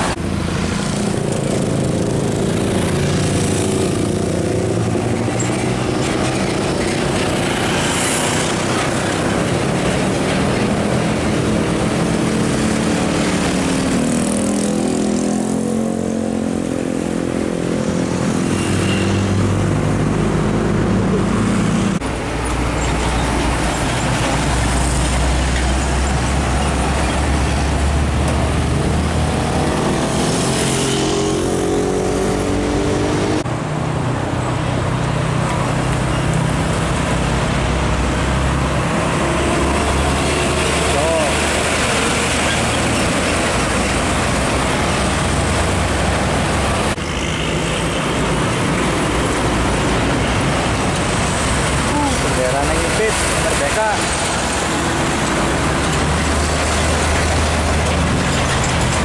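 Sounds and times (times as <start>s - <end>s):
road traffic noise: 0.0s - 59.0s
diesel trucks pulling away: 31.3s - 59.0s.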